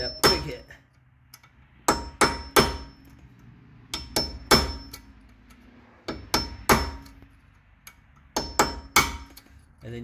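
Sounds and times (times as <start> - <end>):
hammer striking steel punch: 0.0 - 0.7, 1.8 - 3.0, 3.9 - 5.1, 6.1 - 7.2, 8.3 - 9.5.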